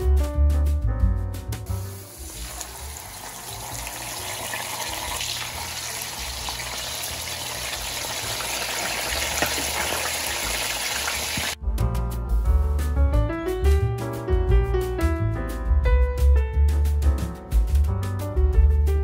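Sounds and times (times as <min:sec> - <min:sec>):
fish sizzling in hot oil: 0:01.8 - 0:11.6
oil popping: 0:02.2 - 0:11.6.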